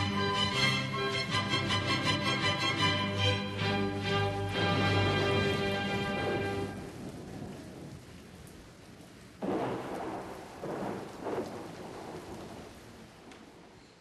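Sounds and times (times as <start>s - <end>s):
steady rain: 0.0s - 14.0s
thunder rolling: 4.0s - 14.0s.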